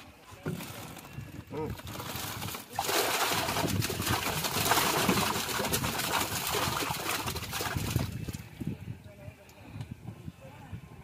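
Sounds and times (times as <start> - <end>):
fish splashing in water: 1.8 - 8.4.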